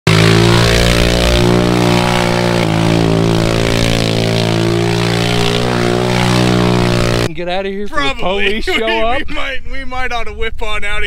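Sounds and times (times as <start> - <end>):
engine running at high revs: 0.0 - 7.3.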